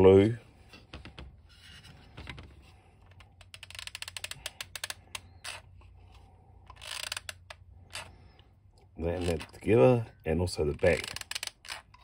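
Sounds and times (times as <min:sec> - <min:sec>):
plastic toy parts clicking: 0:03.3 - 0:05.6, 0:11.0 - 0:12.0.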